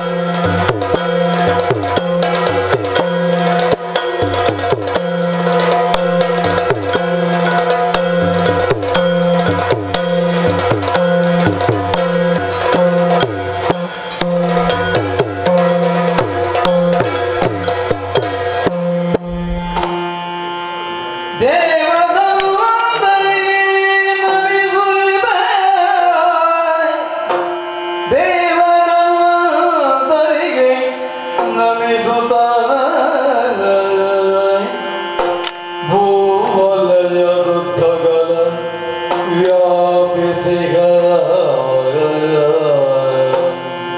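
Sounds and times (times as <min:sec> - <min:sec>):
steady drum rhythm: 0:00.3 - 0:20.1
steady drone: 0:05.4 - 0:20.4
man singing: 0:21.4 - 0:27.2, 0:28.1 - 0:34.9, 0:35.8 - 0:43.7.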